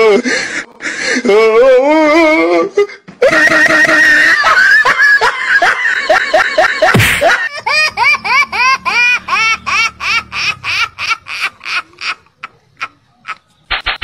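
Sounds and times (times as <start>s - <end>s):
high-pitched laughter: 3.2s - 13.5s.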